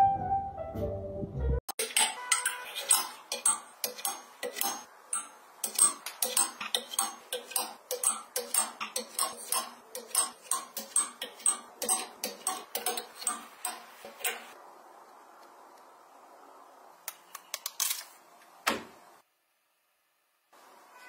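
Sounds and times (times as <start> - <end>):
metal clothes hangers clinking: 1.8 - 14.6.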